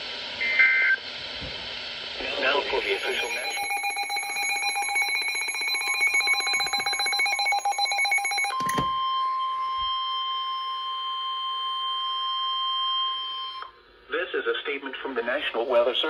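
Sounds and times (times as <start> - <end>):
steady alarm tone: 2.4 - 13.6
fast pulsing alarm beeps: 2.9 - 11.4.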